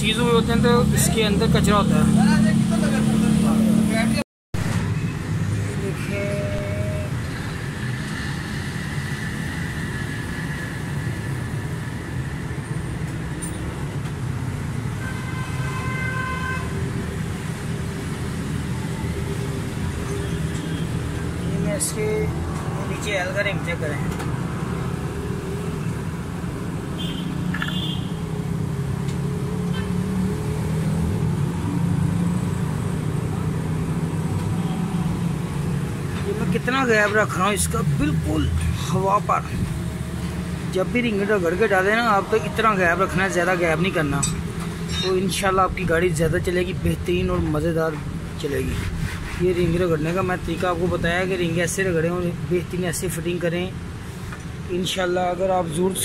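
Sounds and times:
traffic rumble: 0.0 - 56.0.

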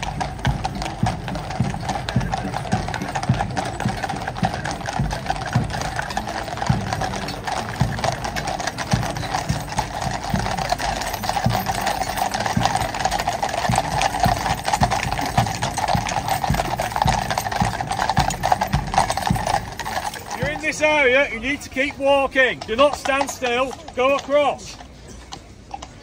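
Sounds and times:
horse hooves on pavement: 0.0 - 26.0.

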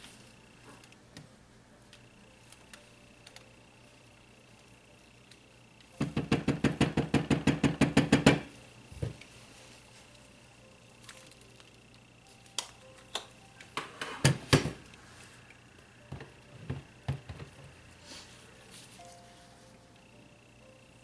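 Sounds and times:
stick blender knocking on plastic: 6.0 - 9.2.

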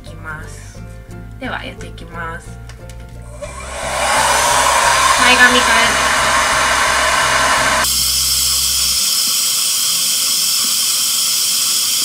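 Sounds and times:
low hum: 3.3 - 7.9
hair dryer blowing: 3.3 - 8.0.

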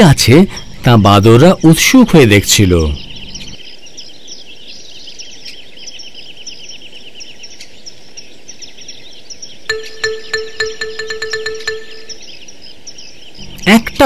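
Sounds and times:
small birds chirping in trills: 0.0 - 14.0
light plinking music: 9.7 - 12.3.

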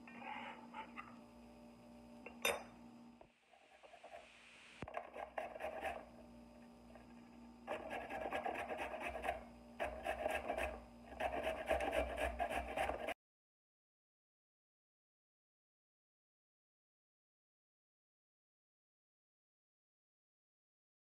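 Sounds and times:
carrot grating on metal grater: 4.9 - 6.1, 7.7 - 13.2.

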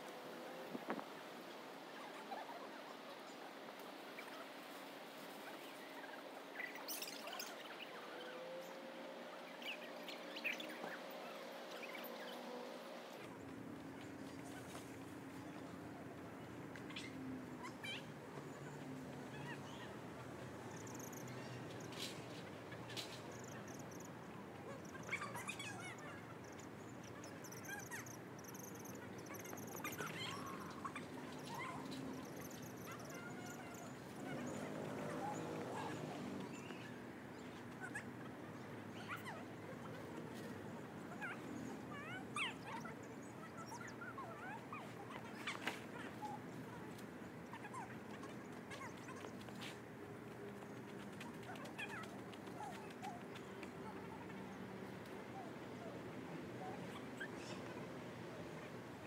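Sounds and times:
low steady background noise: 0.0 - 59.0
small birds chirping: 2.0 - 15.8, 16.4 - 56.0
squeaky bird calls: 24.7 - 34.6.

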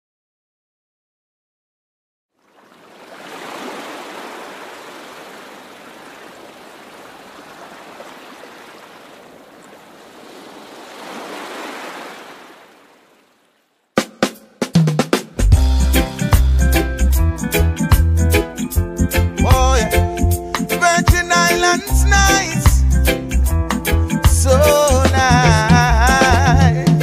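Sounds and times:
ocean waves rushing: 2.4 - 13.8.

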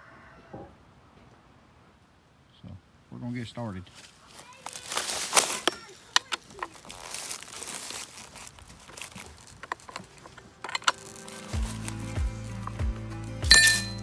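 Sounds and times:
rustling dry leaves: 3.8 - 14.0
chainsaw chain clicking: 8.9 - 12.8.

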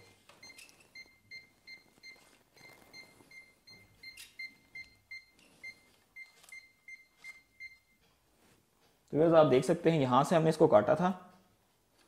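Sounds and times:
voltage detector beeping: 0.0 - 8.0.

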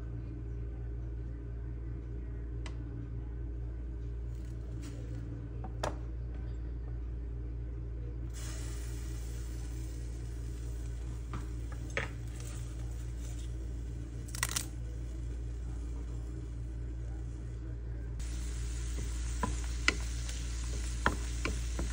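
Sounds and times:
low appliance hum: 0.0 - 21.9.

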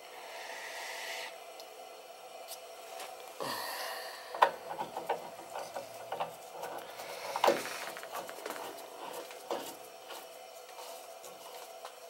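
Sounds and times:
wrench scraping on pipe: 4.7 - 10.2.

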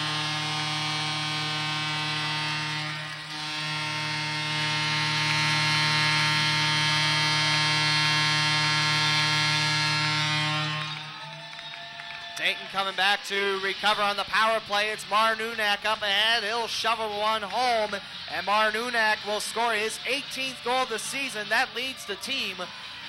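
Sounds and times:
arena goal horn blast: 0.0 - 11.2.

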